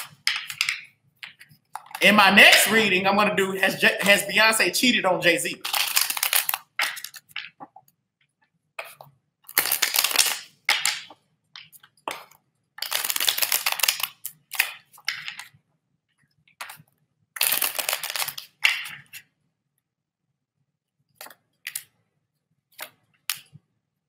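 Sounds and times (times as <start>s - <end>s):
cards being shuffled: 5.6s - 7.8s.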